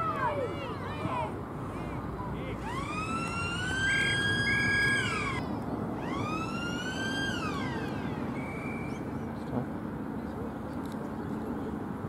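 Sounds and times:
siren blasts: 2.6s - 9.3s.

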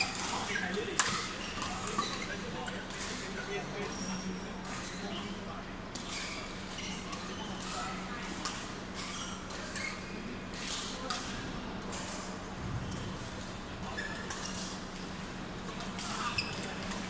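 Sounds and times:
rackets striking shuttlecock: 1.0s - 2.0s
shoe squeaks on court floor: 9.0s - 10.2s, 13.9s - 14.8s, 16.0s - 16.9s
steady low hum: 9.7s - 17.0s.

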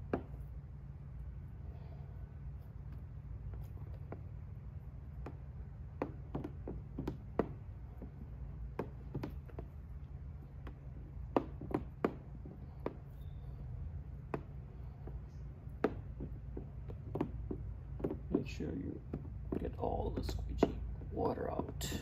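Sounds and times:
plastic squeegee clicking and tapping: 6.0s - 9.8s, 14.3s - 20.8s.

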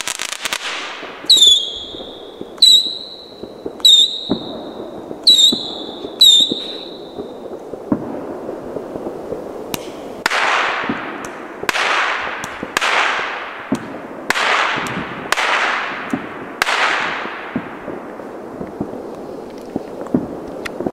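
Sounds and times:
firework whistles: 0.0s - 7.6s
firework cracks: 0.0s - 20.9s
hissing firework bursts: 0.0s - 20.9s
small pops: 9.7s - 10.0s.

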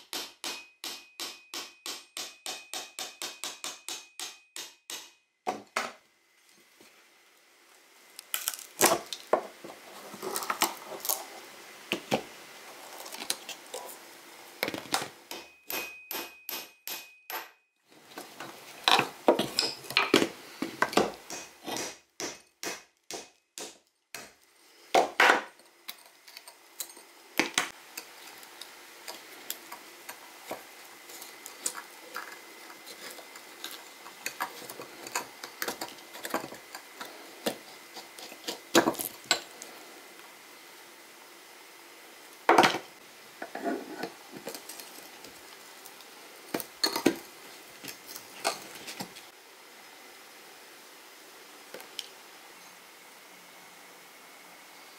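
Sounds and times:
hammer striking steel tool: 0.0s - 5.3s, 15.3s - 17.6s, 21.0s - 24.4s.

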